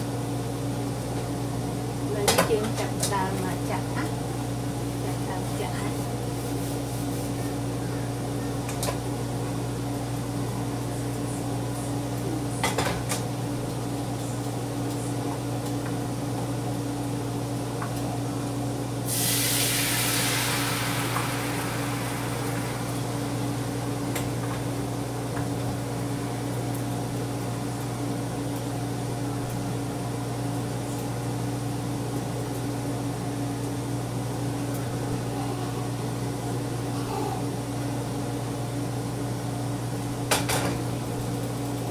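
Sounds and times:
steady hum: 0.0 - 41.9
batter sizzling in a hot pan: 19.0 - 25.3.

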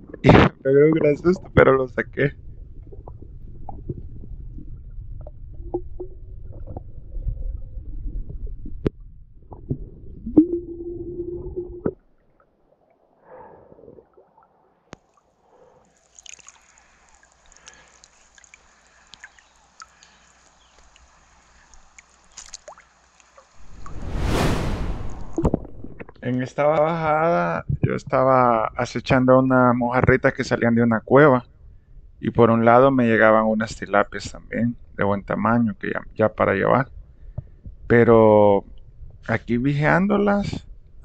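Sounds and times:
faint ticks: 17.2 - 23.5.

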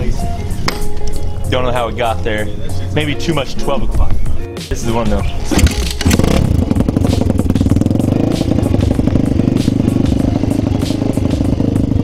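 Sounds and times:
motorcycle engine idling: 5.6 - 12.0.

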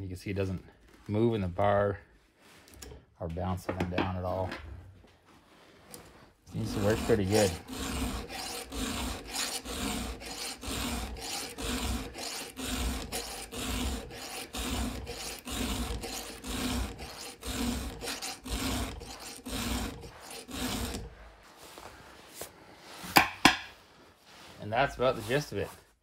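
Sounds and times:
file rasping on chainsaw chain: 6.5 - 21.3.

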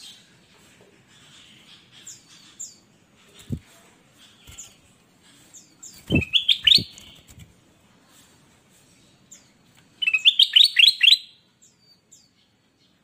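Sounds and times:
bird chirping: 1.1 - 3.6, 4.2 - 7.4, 9.0 - 13.0.

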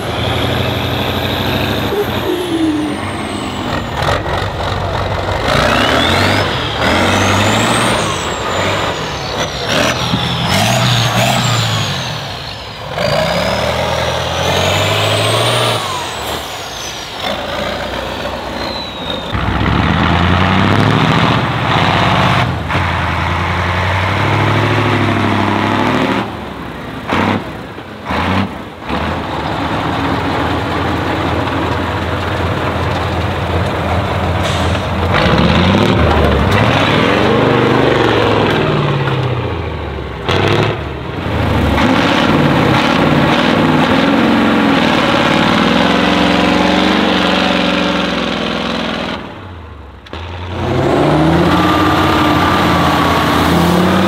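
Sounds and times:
diesel truck engine revving: 0.0 - 54.0
high whistle: 18.6 - 19.4.

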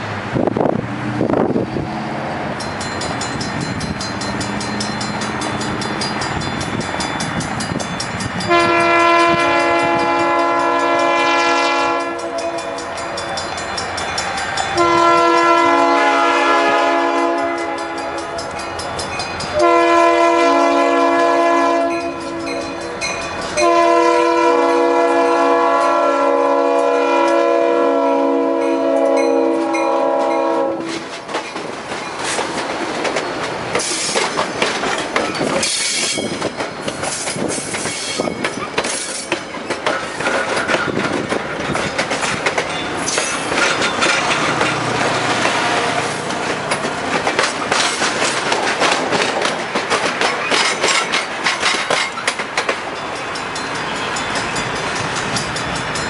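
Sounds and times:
locomotive air horn blasts: 8.5 - 13.2, 14.8 - 18.5, 19.6 - 23.0, 23.6 - 31.1, 45.5 - 46.3
wheels clicking over rail joints: 29.0 - 56.0.

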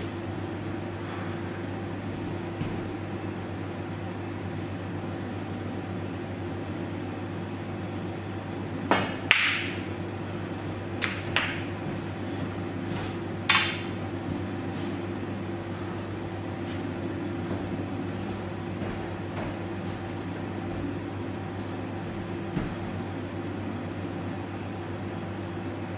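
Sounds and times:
cue tip striking ball: 8.9 - 9.9, 11.0 - 11.8, 13.4 - 14.0
snooker balls clicking: 8.9 - 9.9, 11.0 - 12.6, 13.4 - 14.1.

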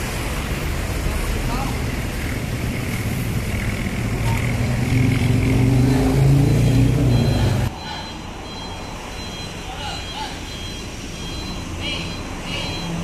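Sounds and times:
vehicle engine running: 0.0 - 7.7.

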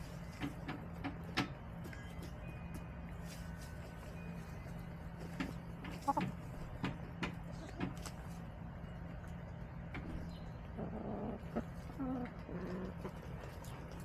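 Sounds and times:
hens clucking: 5.2 - 8.4, 10.0 - 14.0.

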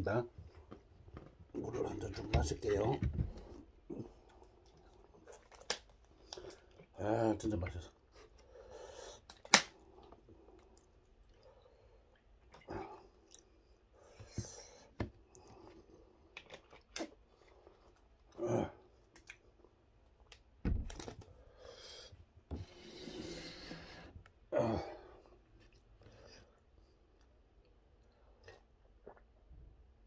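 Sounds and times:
chewing: 4.1 - 6.9
low thump: 20.6 - 21.0.

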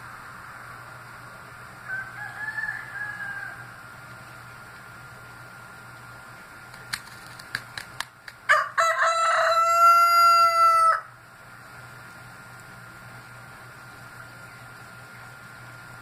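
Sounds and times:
rooster crowing: 1.8 - 3.8, 8.5 - 11.2.

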